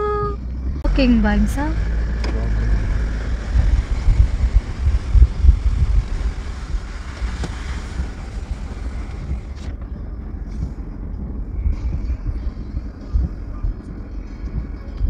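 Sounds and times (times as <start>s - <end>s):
vehicle road rumble: 0.0s - 15.0s
tyre hiss on wet road: 5.6s - 9.6s.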